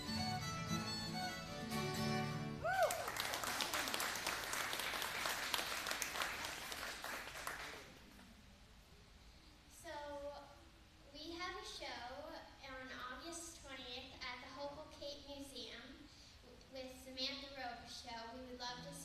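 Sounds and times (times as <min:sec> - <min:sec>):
fiddle and acoustic guitars: 0:00.0 - 0:02.6
audience applauding: 0:02.6 - 0:08.1.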